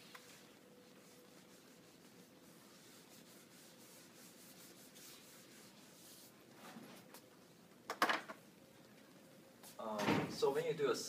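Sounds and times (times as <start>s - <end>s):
eraser rubbing on whiteboard: 0.0s - 6.4s.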